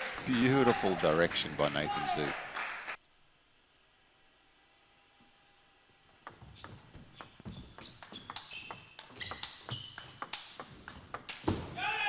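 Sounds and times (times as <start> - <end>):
table tennis ball clicking: 6.1 - 11.5.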